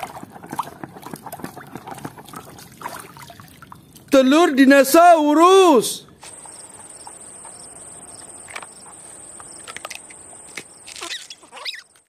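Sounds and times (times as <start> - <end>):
faint outdoor hiss: 2.6 - 12.0
short chirping call: 6.2 - 11.9
insects droning: 6.2 - 12.0.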